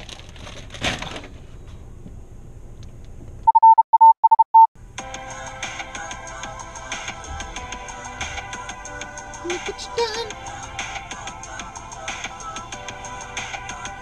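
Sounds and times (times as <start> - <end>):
pulsed test tone beep: 3.5 - 4.7
electronic music: 6.8 - 10.4.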